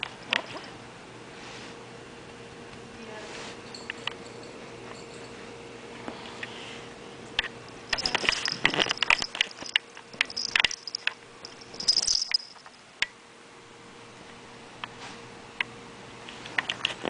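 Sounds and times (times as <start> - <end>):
cat fur rustling and clicking: 8.0 - 12.6.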